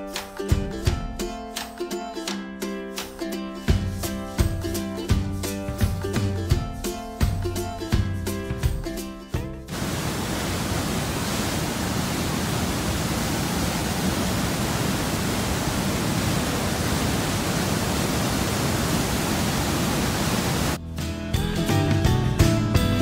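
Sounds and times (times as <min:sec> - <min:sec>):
waterfall rushing: 0:09.7 - 0:20.8.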